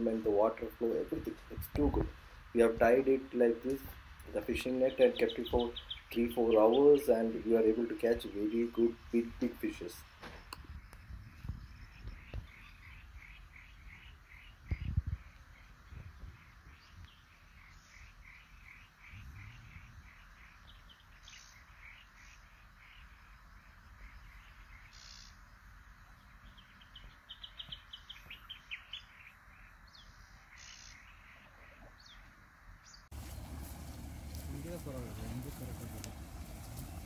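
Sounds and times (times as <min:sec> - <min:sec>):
bird calls: 0:03.6 - 0:37.0.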